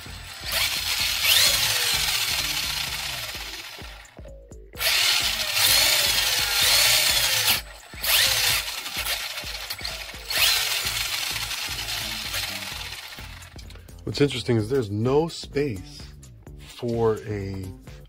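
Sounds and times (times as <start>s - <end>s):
electric motor whine: 0.0s - 4.2s, 4.8s - 13.7s.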